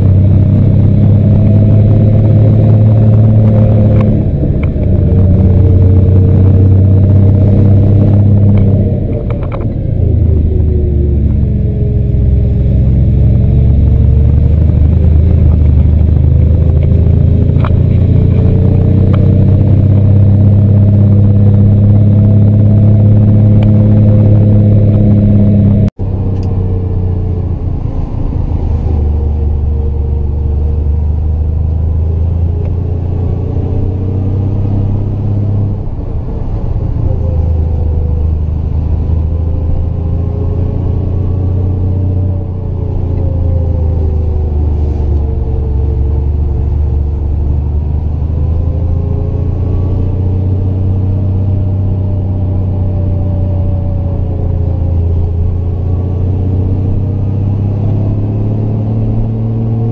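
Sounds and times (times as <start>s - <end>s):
car engine under load: 0.0s - 59.9s.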